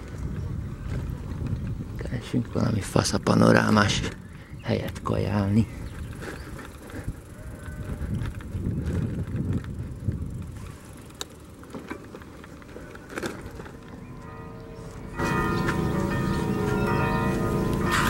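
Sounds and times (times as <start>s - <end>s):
wind buffeting microphone: 0.0s - 11.1s
church bells ringing: 13.6s - 18.0s.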